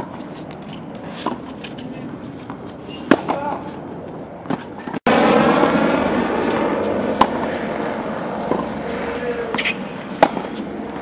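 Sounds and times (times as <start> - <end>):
steady outdoor wash: 0.0 - 11.0
tennis ball struck by racket: 2.5 - 3.6, 7.1 - 7.5, 8.4 - 11.0.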